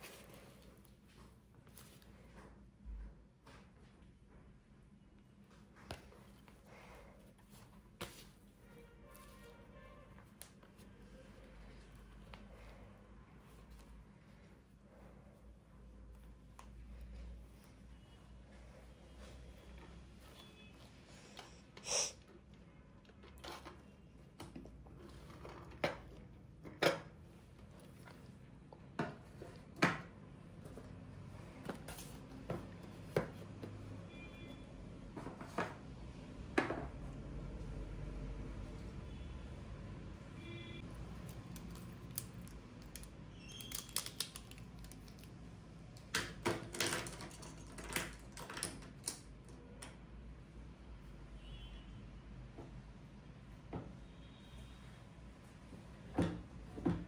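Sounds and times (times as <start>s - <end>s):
tins and boxes set on desk: 40.4s - 50.1s
plastic pens clicking and tapping: 41.2s - 50.0s.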